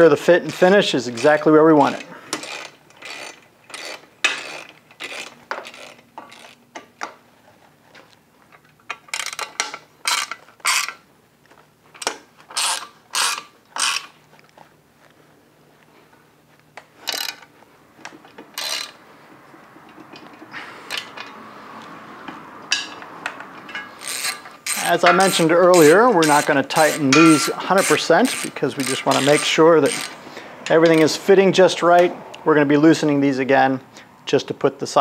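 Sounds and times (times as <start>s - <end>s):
ratchet wrench clicking: 1.2s - 6.9s, 8.9s - 11.0s, 12.0s - 14.1s, 17.1s - 17.5s, 18.5s - 19.0s, 22.7s - 31.2s.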